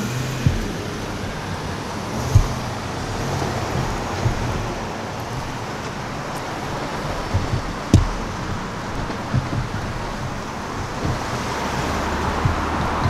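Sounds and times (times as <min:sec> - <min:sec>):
tyre noise: 0:00.0 - 0:13.0
vehicle engines: 0:00.0 - 0:13.0
vehicles thumping over rails: 0:00.0 - 0:13.0.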